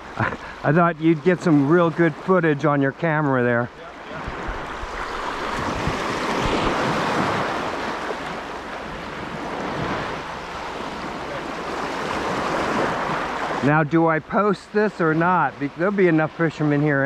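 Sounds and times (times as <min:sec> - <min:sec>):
wind buffeting microphone: 0:03.9 - 0:13.6
small waves washing over rocks: 0:04.0 - 0:13.6.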